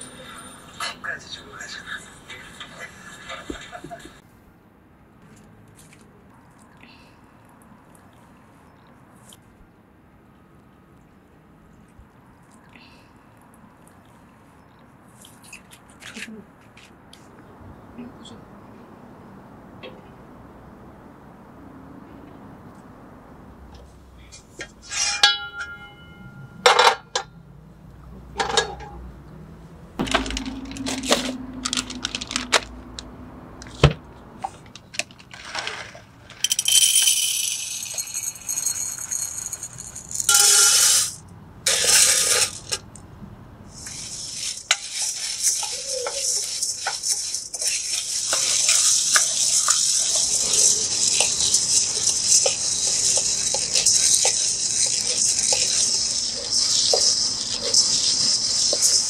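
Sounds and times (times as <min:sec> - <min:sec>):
coffee beans poured rattling: 0:30.0 - 0:32.6, 0:35.2 - 0:42.7, 0:43.7 - 0:59.0
beans stirred in wok: 0:43.7 - 0:59.0.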